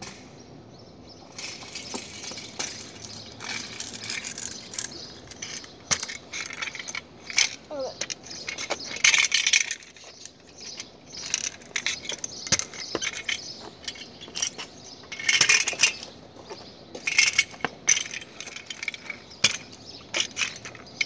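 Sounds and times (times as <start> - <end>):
scooter wheels rattling on pavement: 1.1 - 21.0.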